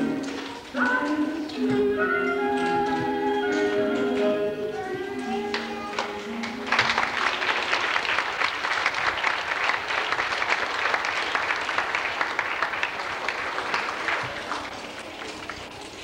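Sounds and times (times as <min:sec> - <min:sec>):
dance music: 0:00.0 - 0:06.7
audience applauding: 0:05.2 - 0:16.0.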